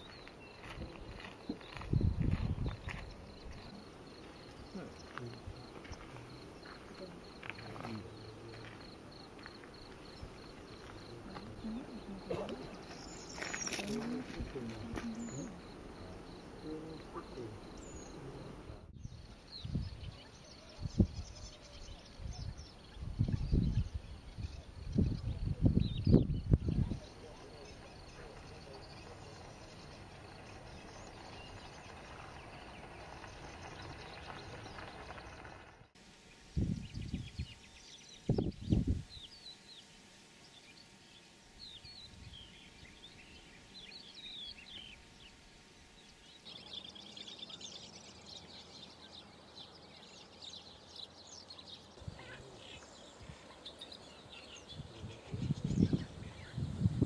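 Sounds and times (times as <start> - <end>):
cricket chirping: 0.0 - 57.0
low hiss: 35.9 - 57.0.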